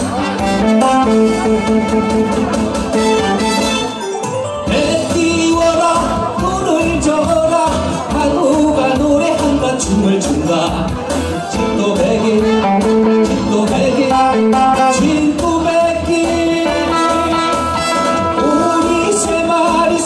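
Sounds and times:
live band playing: 0.0 - 20.0
man singing: 4.6 - 20.0.

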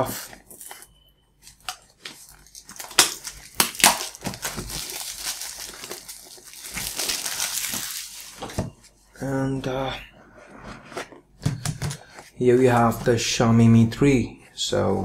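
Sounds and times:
plastic shrink wrap crinkling: 1.4 - 8.7.

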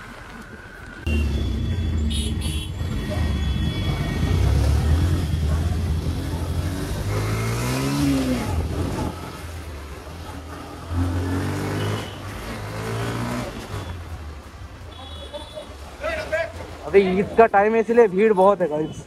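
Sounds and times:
vehicle engine revving: 1.1 - 14.0.

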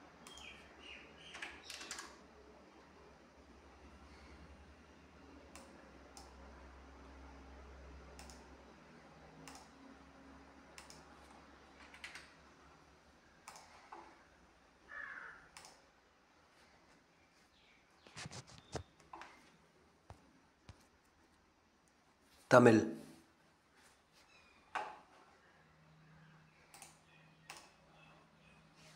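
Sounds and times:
faint scattered clicks: 5.4 - 6.4, 8.1 - 8.6, 9.4 - 9.9, 10.7 - 12.5, 13.4 - 14.2, 15.5 - 15.9, 26.5 - 27.8.

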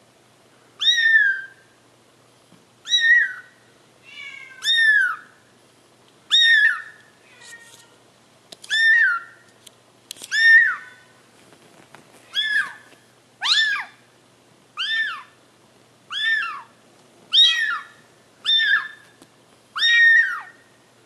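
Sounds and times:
kitten mewing: 4.1 - 5.2, 8.7 - 9.4, 10.3 - 11.1, 12.2 - 14.0, 14.8 - 15.4, 16.1 - 16.7, 17.3 - 19.1, 19.8 - 20.6.

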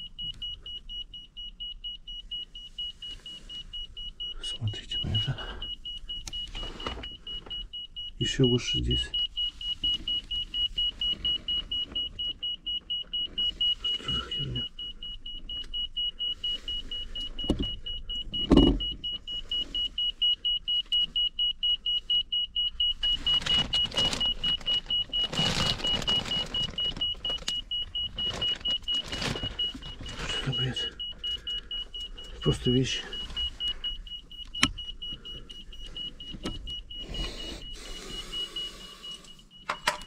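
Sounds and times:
rustling: 5.2 - 8.4, 9.0 - 38.7
meter beeping rapidly: 22.4 - 40.0.

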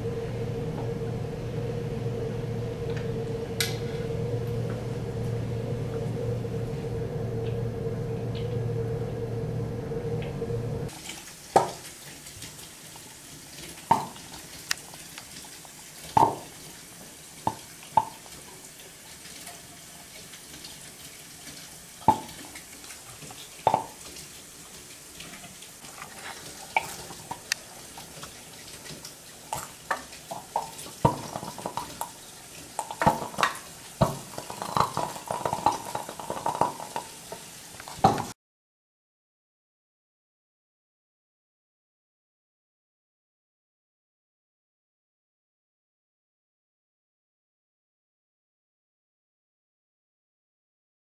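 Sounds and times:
bubbling hiss: 0.0 - 38.4.

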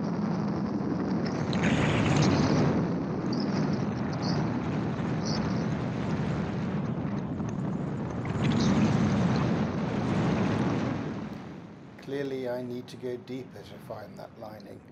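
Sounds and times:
wind rushing over microphone: 0.0 - 14.9.

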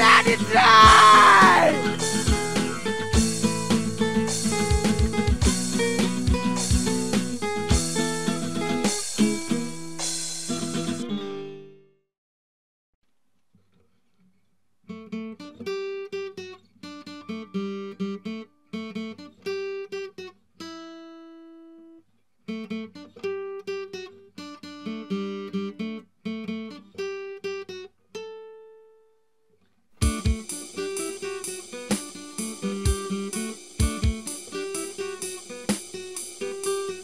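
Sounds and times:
acoustic guitar strumming chords: 0.0 - 11.8, 30.0 - 37.0.

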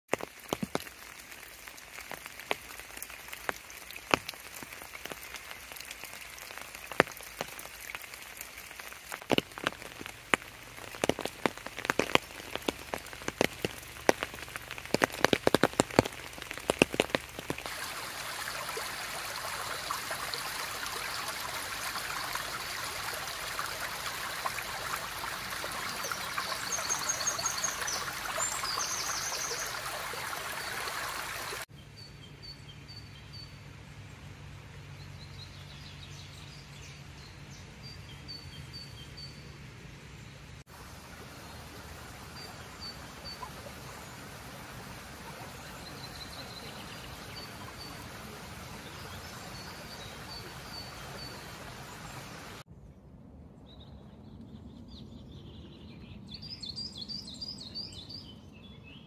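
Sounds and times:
raindrops dripping and pattering: 0.0 - 31.7, 40.5 - 52.6
small stream running: 0.0 - 52.7.

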